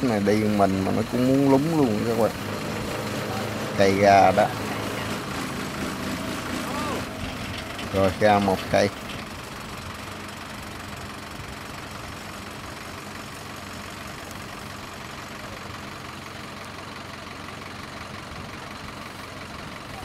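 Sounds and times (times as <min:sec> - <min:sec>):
farm machinery engine idling: 0:00.0 - 0:20.0.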